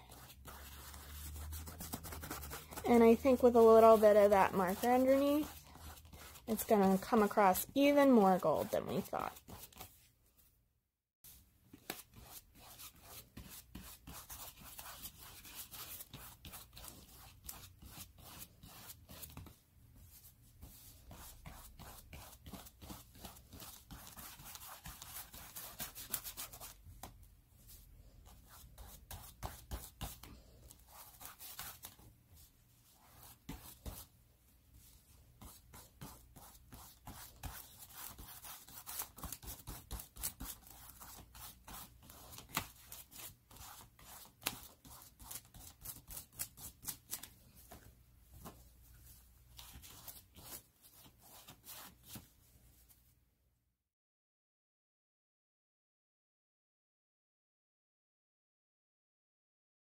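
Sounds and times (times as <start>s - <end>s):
paintbrush brushing on cardboard: 0.0s - 10.1s, 11.3s - 26.9s, 34.8s - 46.7s.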